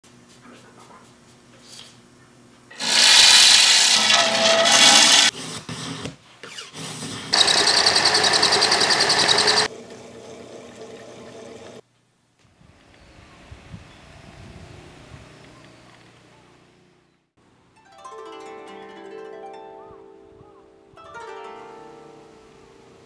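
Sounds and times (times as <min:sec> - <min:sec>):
small power tool whirring: 0:02.7 - 0:11.8.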